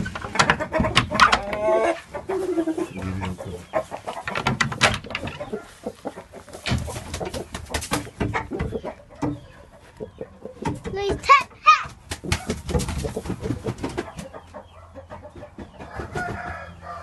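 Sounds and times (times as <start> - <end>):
chickens clucking: 0.0 - 17.0
clicks and knocks: 4.2 - 5.5.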